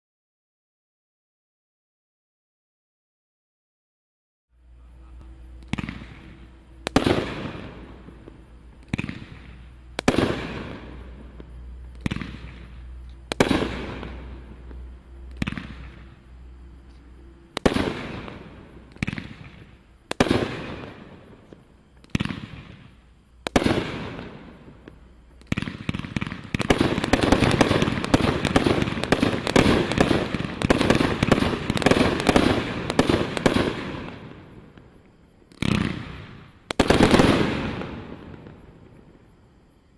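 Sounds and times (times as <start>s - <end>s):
rapid fireworks barrage: 5.4s - 16.3s, 17.5s - 39.1s
fireworks cake firing: 17.6s - 39.0s.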